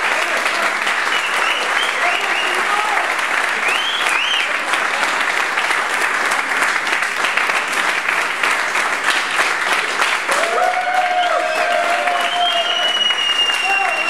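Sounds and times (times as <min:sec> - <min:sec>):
voices cheering: 0:00.0 - 0:04.6, 0:10.3 - 0:14.0
audience applauding: 0:00.0 - 0:14.0.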